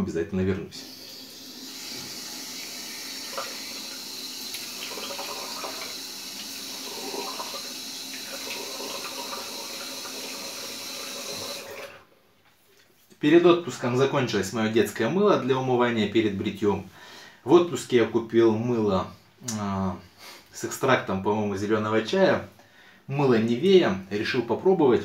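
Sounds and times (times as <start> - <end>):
tap water running into sink: 0.9 - 12.0
hands splashing water: 3.3 - 6.7.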